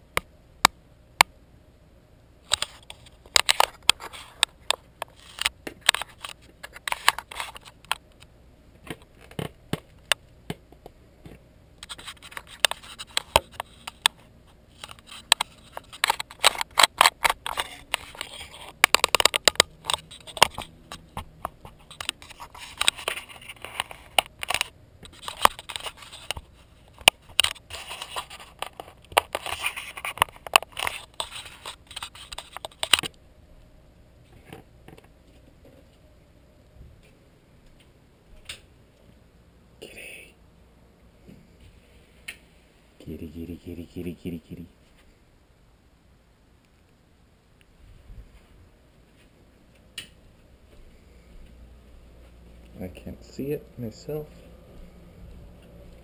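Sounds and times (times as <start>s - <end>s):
clicks and scrapes on camera: 2.4s - 8.3s, 11.3s - 33.2s.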